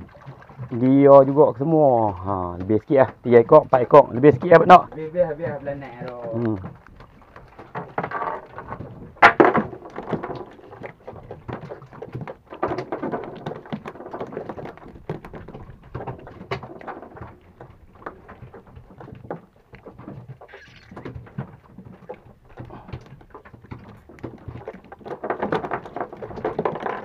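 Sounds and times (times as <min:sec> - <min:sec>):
knocks and taps on boat hull: 0:02.0 - 0:20.4.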